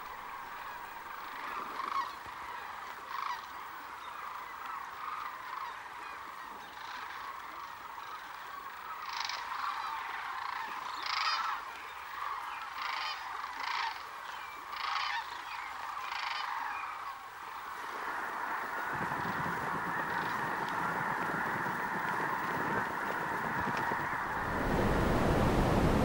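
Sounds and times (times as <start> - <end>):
flock of cranes calling: 0.0 - 26.0
low rushing of birds taking off: 16.7 - 26.0.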